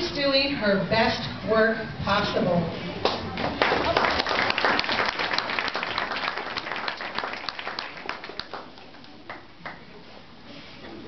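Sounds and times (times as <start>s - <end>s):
audience applauding: 3.4s - 9.8s.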